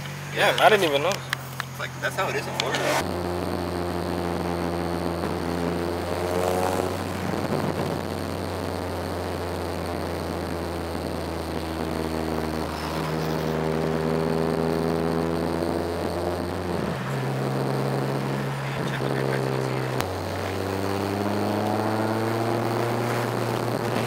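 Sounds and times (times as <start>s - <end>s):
car engine accelerating: 0.0s - 24.0s
road drone inside car: 0.0s - 24.0s.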